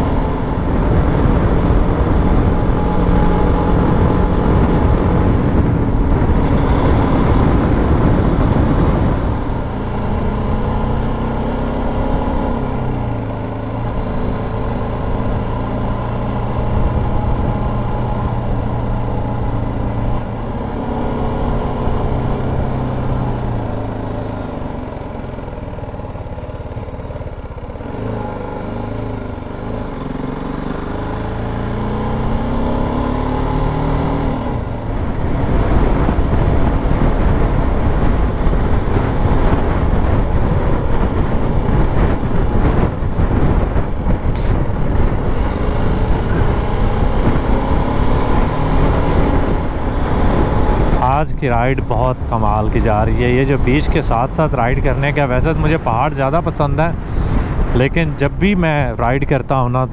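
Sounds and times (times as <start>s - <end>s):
wind buffeting microphone: 0.0s - 11.2s, 34.1s - 59.9s
motorcycle engine accelerating: 0.0s - 59.9s.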